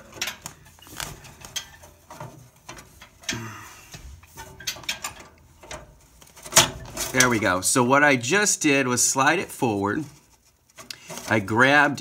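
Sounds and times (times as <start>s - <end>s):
metal housing clicking and scraping: 0.0s - 7.5s.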